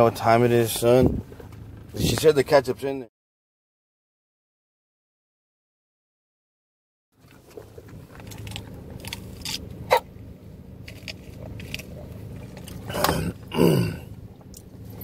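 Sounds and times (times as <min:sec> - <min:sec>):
car engine idling: 0:00.0 - 0:03.0, 0:07.2 - 0:15.0.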